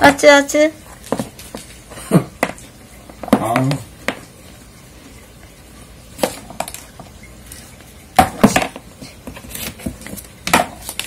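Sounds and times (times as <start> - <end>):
ping-pong ball bouncing in plastic box: 8.2 - 8.9.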